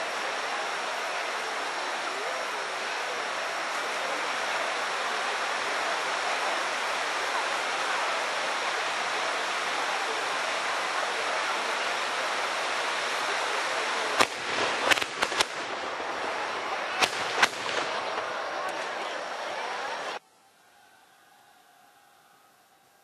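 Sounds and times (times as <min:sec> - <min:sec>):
fireworks hissing sparks: 0:01.6 - 0:20.2
sharp bangs: 0:14.2 - 0:19.0.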